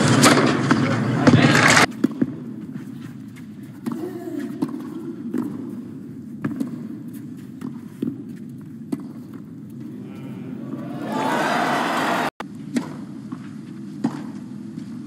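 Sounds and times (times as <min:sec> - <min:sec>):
quiet crowd hum: 0:09.8 - 0:12.3.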